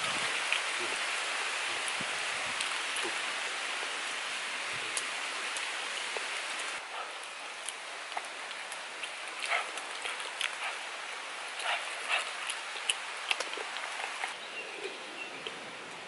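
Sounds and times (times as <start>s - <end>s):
wet chewing and lip smacks: 5.0s - 15.6s.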